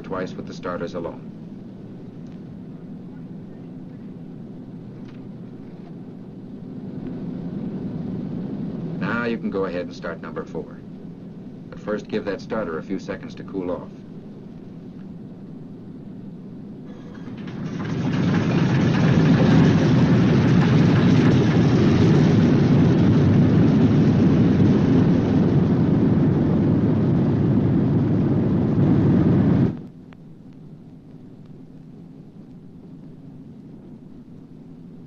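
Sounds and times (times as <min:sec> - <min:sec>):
radial aircraft engine starting: 0:16.9 - 0:29.9.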